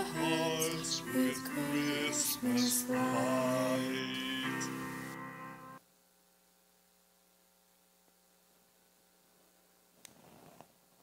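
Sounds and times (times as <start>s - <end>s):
low electrical hum: 3.1s - 11.0s
soft rustle: 9.3s - 11.0s.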